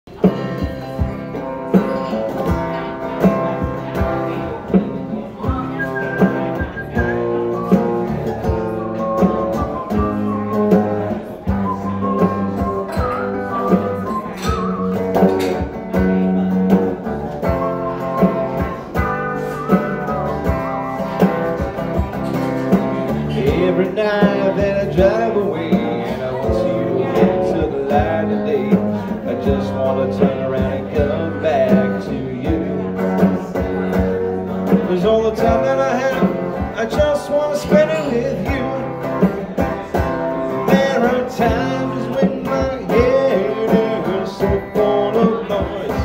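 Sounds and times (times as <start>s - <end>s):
electric guitar playing: 0.1s - 46.0s
steady beat: 0.1s - 46.0s.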